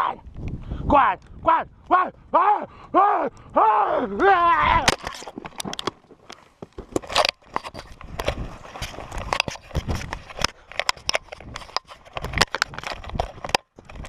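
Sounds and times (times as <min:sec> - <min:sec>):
knocks and crackles: 0:04.6 - 0:14.0
camera scraping against clothing: 0:04.8 - 0:14.0.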